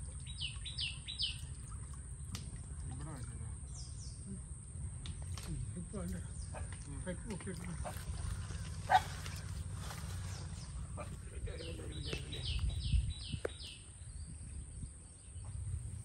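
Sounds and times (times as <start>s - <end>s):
wading through pond water: 0.0s - 16.0s
bird calling: 6.0s - 14.6s
low rumble: 7.6s - 16.0s.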